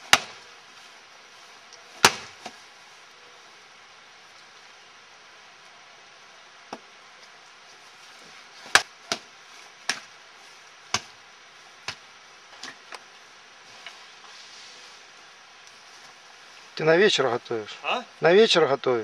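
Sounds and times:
axe chopping firewood: 0.0s - 0.4s, 2.0s - 2.6s, 8.6s - 10.1s, 10.9s - 11.2s, 11.8s - 12.0s.

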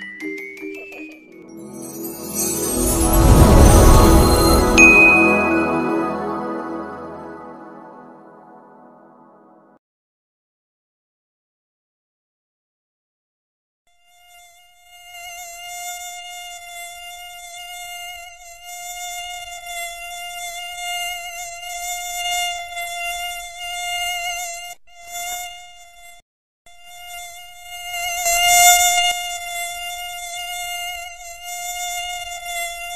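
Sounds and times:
mosquito buzzing whine: 14.1s - 32.9s.

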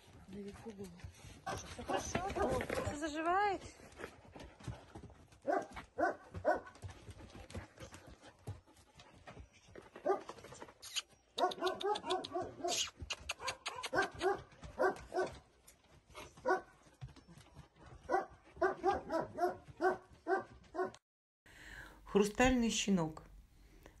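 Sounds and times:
dog barking: 1.4s - 2.9s, 5.4s - 6.8s, 10.0s - 10.3s, 11.4s - 15.4s, 16.4s - 16.7s, 18.1s - 21.0s.

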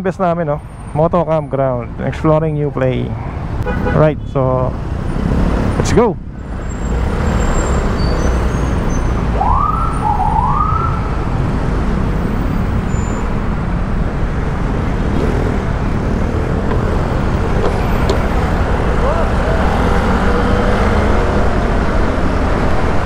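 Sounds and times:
police siren whoops: 9.4s - 11.1s
scooter riding noise: 15.1s - 21.7s.

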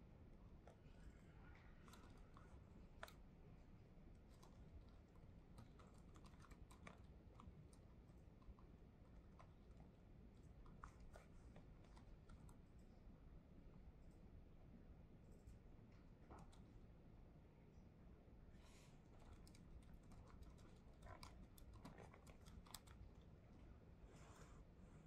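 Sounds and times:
low room hum: 0.0s - 25.0s
laptop keyboard typing: 4.2s - 8.5s, 19.3s - 23.2s.

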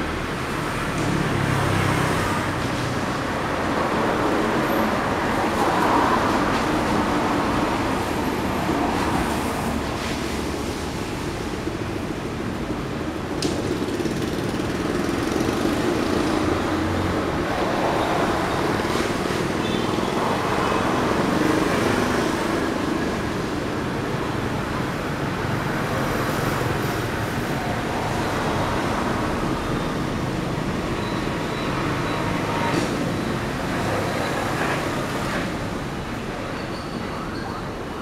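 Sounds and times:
traffic passing on wet road: 0.0s - 36.6s.

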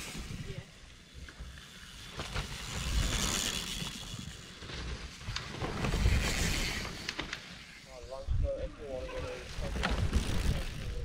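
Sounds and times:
bike rattles and clicks: 0.0s - 7.9s, 9.1s - 11.0s
bike tyres skidding through mud: 1.8s - 7.8s.

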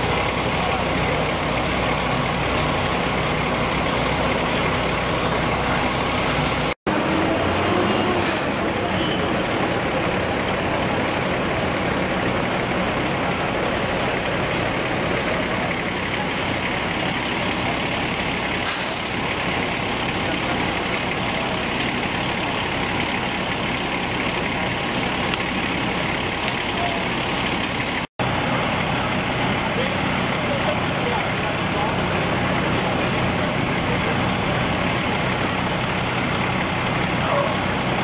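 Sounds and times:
diesel engines idling: 0.0s - 38.0s.

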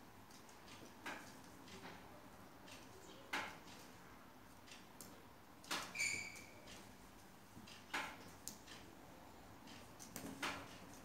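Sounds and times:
high-pitched squeak: 6.0s - 6.5s.

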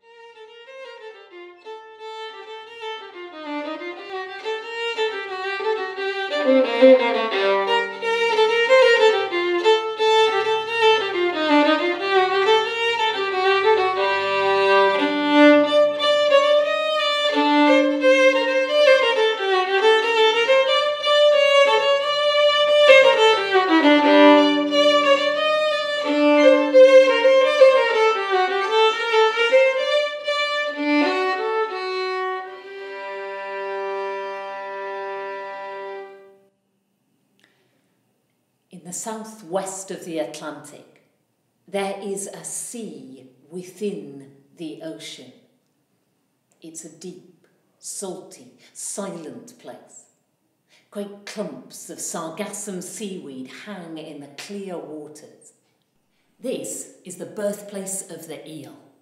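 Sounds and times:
solo violin melody: 0.0s - 36.5s.

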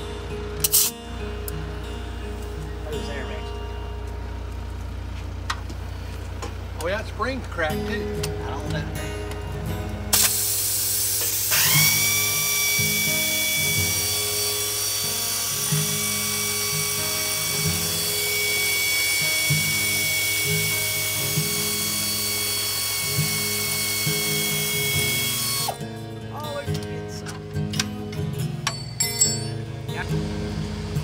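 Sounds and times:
air compressor whine and hiss: 0.6s - 1.0s, 10.1s - 25.8s
background music: 24.6s - 31.0s.

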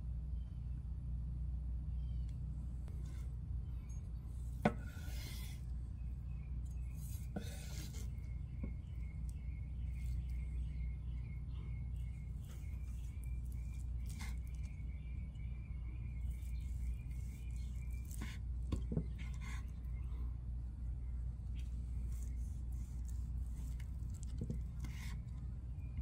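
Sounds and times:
knife slicing through fish: 4.5s - 5.7s, 6.8s - 8.3s, 12.4s - 14.7s, 16.3s - 18.5s, 22.1s - 25.2s
knife rasping on cutting board: 4.6s - 5.6s, 7.0s - 8.3s.

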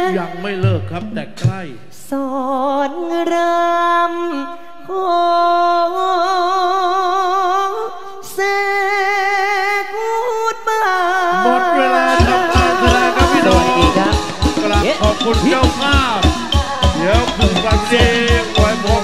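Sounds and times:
person singing unaccompanied: 10.0s - 19.0s.

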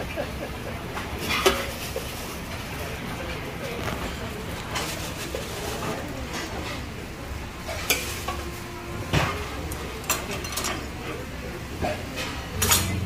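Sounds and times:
broth boiling in pots: 0.0s - 13.0s
dishes clinking: 1.0s - 3.4s, 9.1s - 11.2s, 11.8s - 13.0s.

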